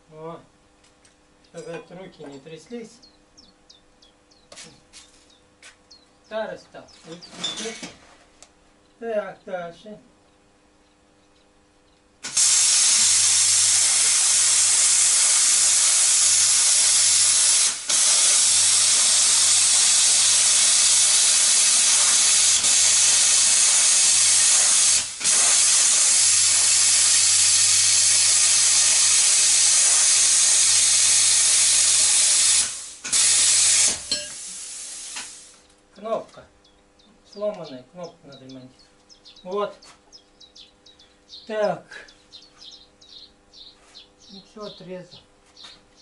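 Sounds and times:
plasma cutter hissing: 12.2s - 35.6s.

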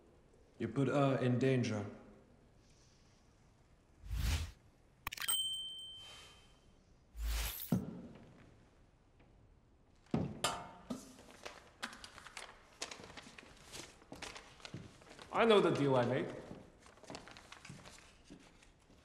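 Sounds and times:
bright chime: 5.1s - 6.6s.

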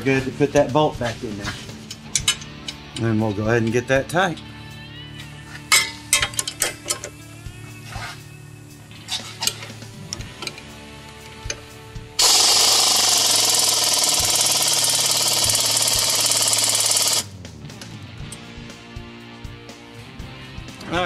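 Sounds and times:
power wrench running: 12.2s - 17.3s.

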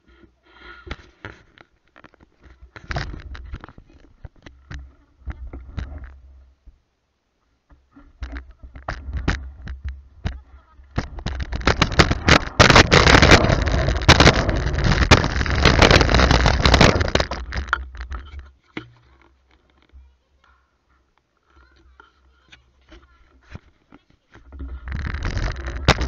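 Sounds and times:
scooter rolling over rough asphalt: 8.2s - 20.1s, 24.4s - 26.0s
low rumble: 10.9s - 17.8s.

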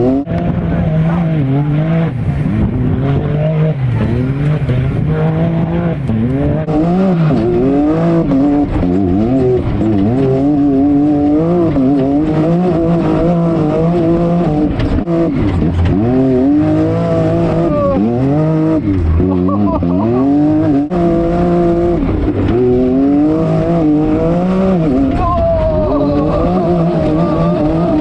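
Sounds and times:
utility vehicle engine racing: 0.0s - 28.0s.

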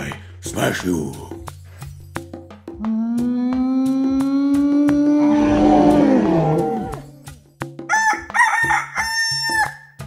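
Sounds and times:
music with wood-block beat: 0.0s - 10.0s
downward sweeping tone: 4.7s - 7.2s
rooster crowing: 7.9s - 9.9s.

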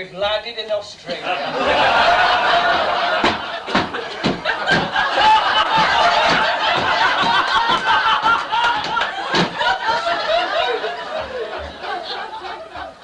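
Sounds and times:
audience laughing: 1.1s - 13.0s
sharp knocks: 2.7s - 10.1s.

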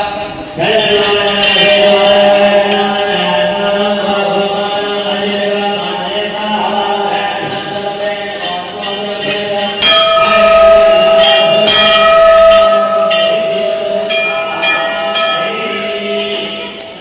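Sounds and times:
brass bell ringing: 8.4s - 16.8s.

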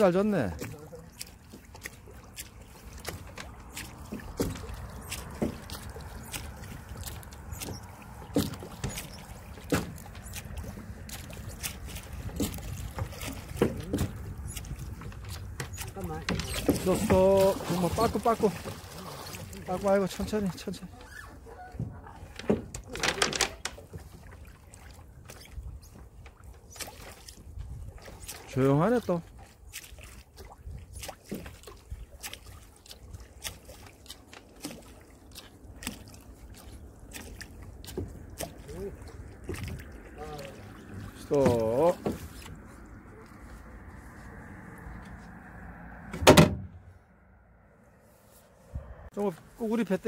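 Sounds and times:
oars clicking and knocking: 0.0s - 46.7s
low water noise: 0.0s - 50.0s
oar knocks: 3.0s - 11.4s, 12.2s - 18.9s, 21.6s - 24.2s, 41.1s - 42.6s, 46.0s - 46.7s.

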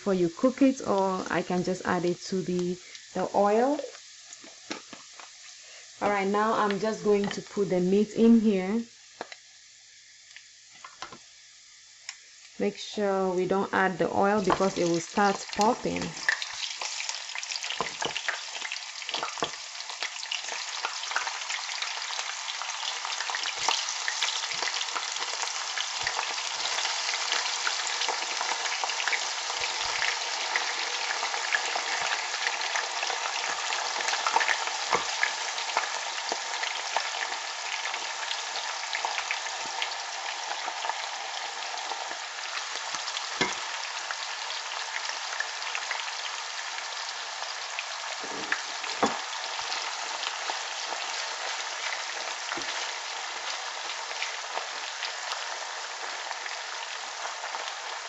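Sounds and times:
meat sizzling in hot oil: 0.0s - 58.0s.

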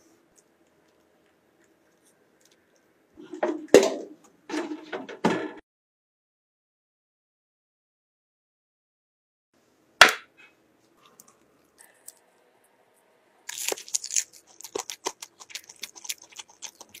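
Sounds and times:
flaky pastry crackling: 13.4s - 17.0s.

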